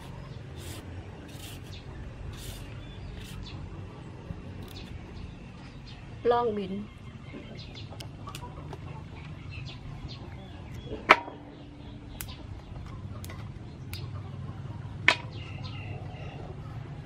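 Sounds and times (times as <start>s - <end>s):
beans snapping by hand: 12.1s - 14.0s.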